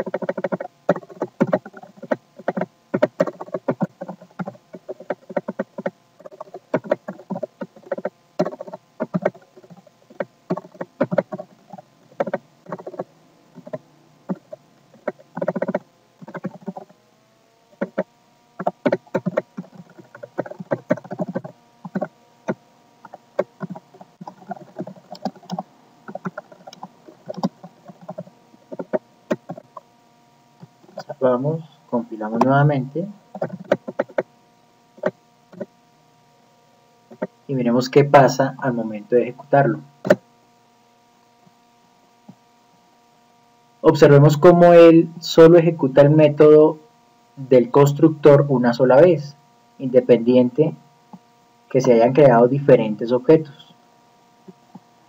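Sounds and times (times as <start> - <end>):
computer keyboard typing: 0.0 - 16.9, 17.7 - 29.8, 30.6 - 31.2, 33.3 - 34.3, 35.0 - 35.7, 37.1 - 37.3
faint steady hum: 0.0 - 55.0.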